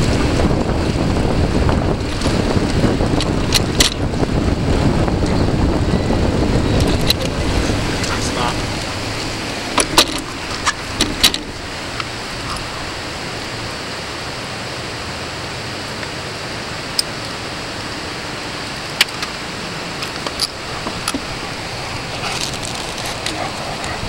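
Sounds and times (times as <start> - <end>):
wind and tyre noise: 0.0 - 24.0
metallic clicks and rattles: 9.7 - 11.6.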